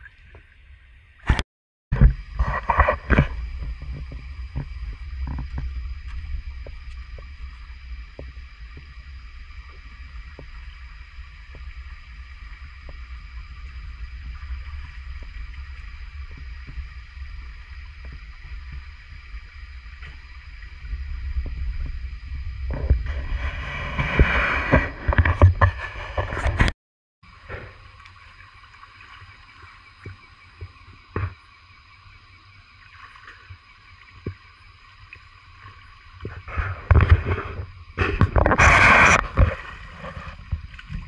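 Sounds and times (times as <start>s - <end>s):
water splashing and sloshing: 0.0s - 1.4s, 2.0s - 26.7s, 27.3s - 41.0s
microphone handling and wind rumble: 1.2s - 26.8s, 36.2s - 41.0s.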